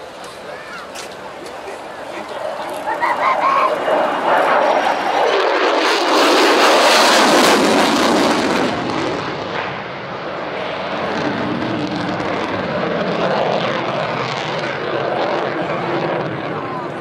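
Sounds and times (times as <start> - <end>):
jet engine roar: 0.0 - 17.0.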